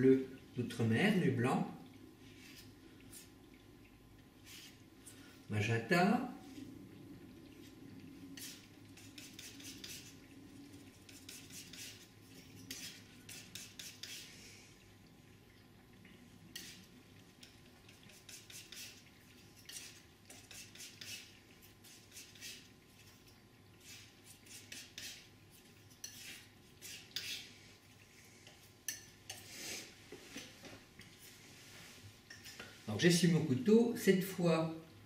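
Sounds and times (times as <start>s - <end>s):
painting knife scraping palette: 8.4s - 10.3s, 11.0s - 14.3s, 17.9s - 23.2s, 23.8s - 27.6s.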